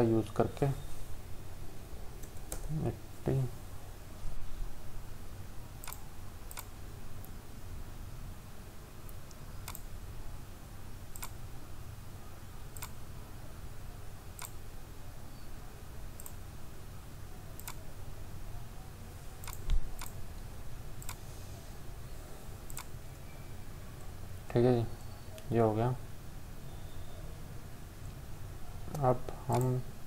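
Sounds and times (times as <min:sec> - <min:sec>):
low electrical hum: 0:00.0 - 0:30.0
computer mouse clicking: 0:05.8 - 0:06.7, 0:09.1 - 0:09.9, 0:11.1 - 0:11.4, 0:12.8 - 0:13.0, 0:14.4 - 0:14.6, 0:16.2 - 0:16.4, 0:17.6 - 0:17.8, 0:19.4 - 0:20.2, 0:21.0 - 0:21.2, 0:22.7 - 0:22.9, 0:28.9 - 0:29.8.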